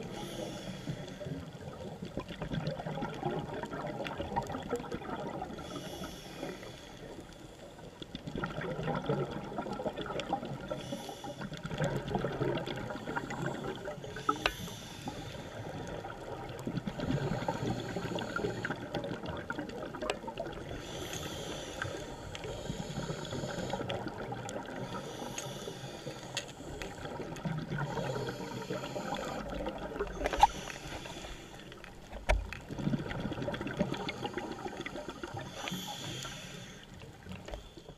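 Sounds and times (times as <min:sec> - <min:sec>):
watery hiss: 0:00.0 - 0:01.4, 0:05.6 - 0:07.7, 0:10.6 - 0:11.7, 0:12.8 - 0:16.0, 0:17.0 - 0:19.0, 0:20.6 - 0:31.9, 0:33.9 - 0:37.9
regulator bubbles underwater: 0:00.0 - 0:37.9.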